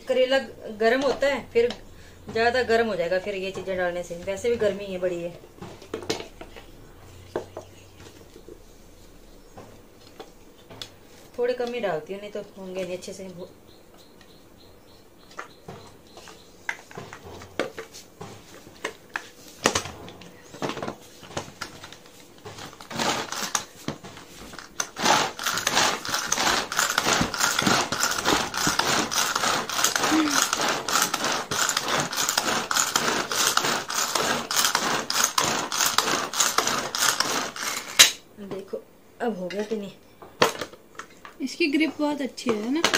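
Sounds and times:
hand chopper rattling whirr: 0:22.6 - 0:23.7, 0:24.5 - 0:38.1.

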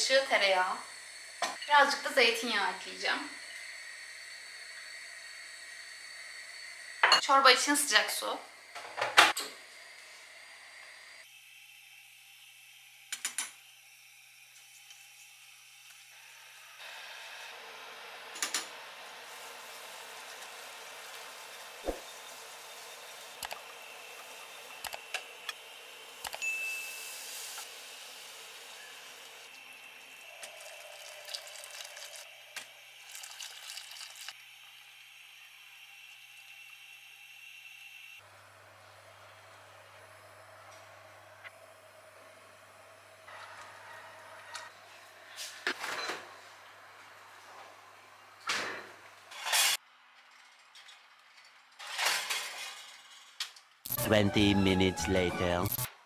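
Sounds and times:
water pouring into pot: 0:29.3 - 0:35.0.

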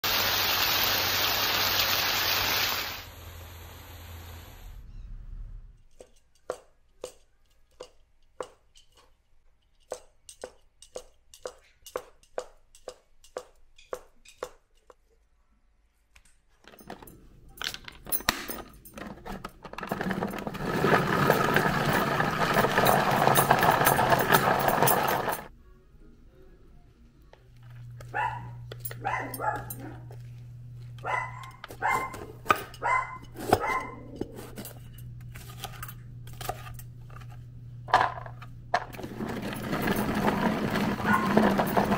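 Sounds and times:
food chopper running: 0:19.7 - 0:25.5, 0:37.9 - 0:41.9.

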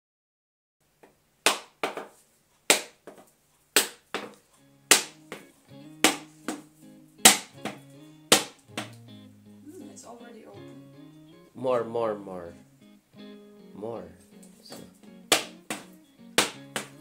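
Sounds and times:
background music: 0:03.9 - 0:17.0.

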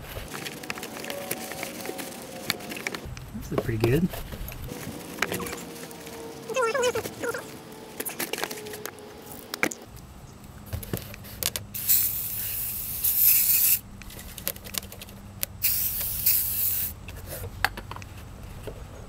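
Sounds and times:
paper towels rustling: 0:00.0 - 0:03.1, 0:04.0 - 0:08.9
aerosol spray hiss: 0:11.8 - 0:13.8, 0:15.6 - 0:17.0.

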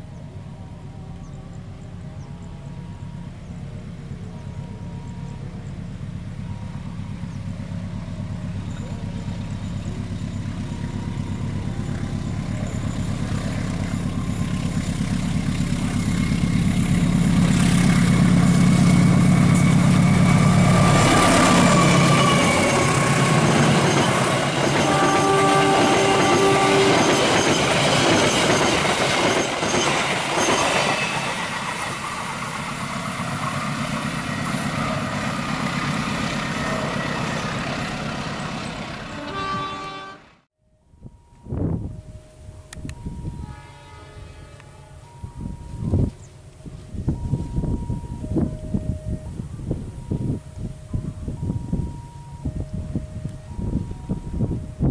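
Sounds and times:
locomotive engine drone: 0:00.0 - 0:54.9
train wheels rumbling and clattering: 0:05.2 - 0:39.7.

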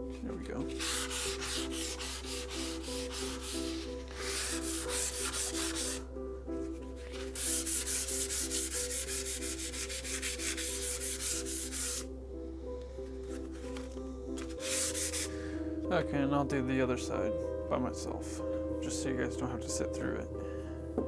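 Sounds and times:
sandpaper rubbing on saw blade: 0:00.8 - 0:06.0, 0:07.2 - 0:12.1, 0:14.6 - 0:15.3.

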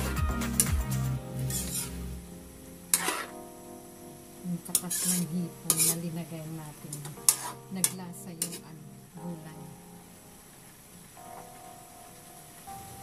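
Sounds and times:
metal ladle scraping wok: 0:01.4 - 0:02.2, 0:02.9 - 0:03.4, 0:04.7 - 0:06.2, 0:06.9 - 0:08.7.

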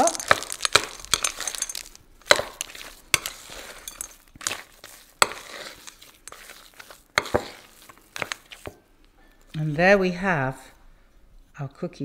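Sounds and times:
wet scraping of dough: 0:00.0 - 0:08.8.

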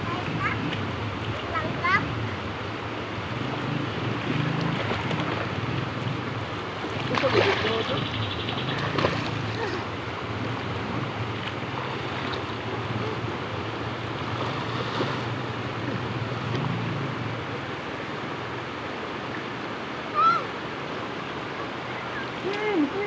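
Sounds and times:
river water rushing over rocks: 0:00.0 - 0:23.0
people splashing in water: 0:04.2 - 0:06.0, 0:06.8 - 0:08.0, 0:08.6 - 0:13.4
child shouting: 0:20.1 - 0:20.5.

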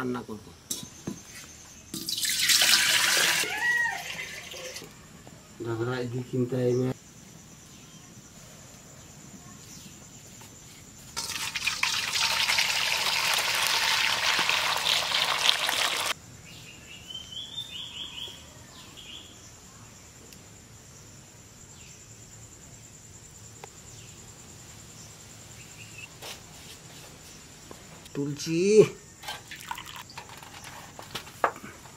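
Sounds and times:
water pouring into steel bowl: 0:02.0 - 0:04.9, 0:11.2 - 0:16.2, 0:29.4 - 0:30.0.

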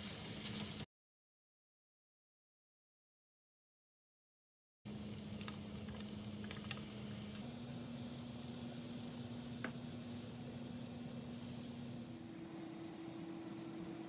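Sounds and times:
noodles and meat sizzling in pan: 0:00.0 - 0:00.9, 0:04.9 - 0:14.0
steady low hum: 0:04.9 - 0:14.0.

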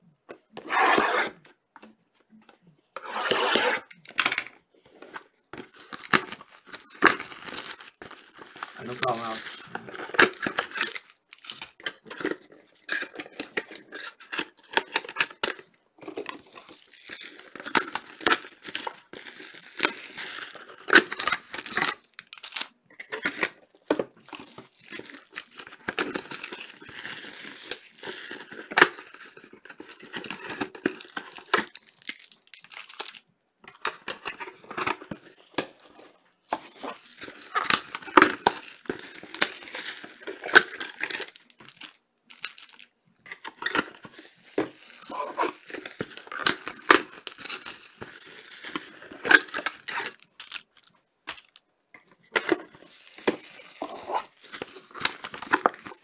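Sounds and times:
card packs tearing open: 0:05.5 - 0:23.6, 0:24.2 - 0:35.8, 0:36.6 - 0:51.6, 0:52.2 - 0:56.0
wrappers crinkling: 0:05.6 - 0:11.7, 0:24.3 - 0:33.2, 0:36.7 - 0:51.6, 0:52.6 - 0:56.0.

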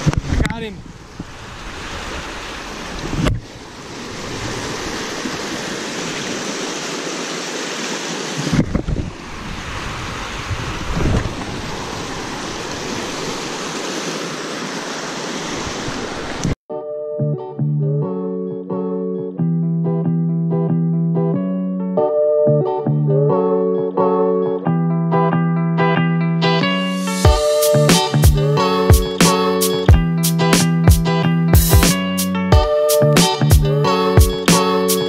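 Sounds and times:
wind buffeting microphone: 0:00.0 - 0:06.3, 0:08.4 - 0:13.4
stream water rushing: 0:00.0 - 0:16.6
guitar music: 0:16.7 - 0:35.0.

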